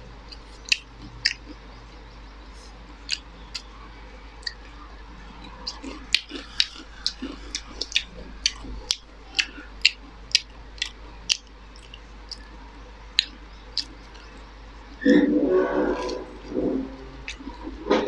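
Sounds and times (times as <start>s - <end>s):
person chewing crunchy food: 5.4s - 12.6s, 13.2s - 15.2s, 15.8s - 18.0s.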